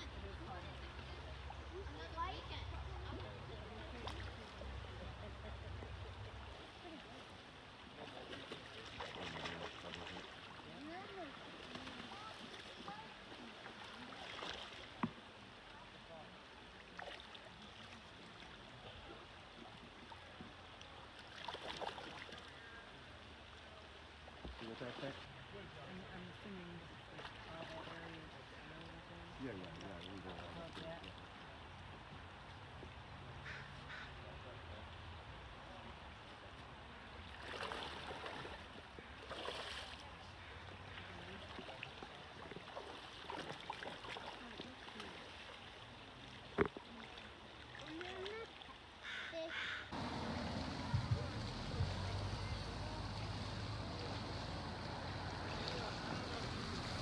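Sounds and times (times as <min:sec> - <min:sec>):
creek water running over gravel: 0:00.0 - 0:57.0
fish splashing: 0:08.1 - 0:15.0, 0:21.2 - 0:22.8, 0:37.3 - 0:46.0, 0:46.6 - 0:57.0
fish splashing at surface: 0:21.3 - 0:22.6.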